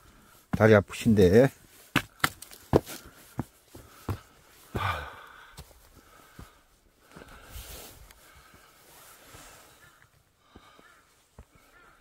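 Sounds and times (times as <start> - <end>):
person breathing out: 2.9 - 11.0.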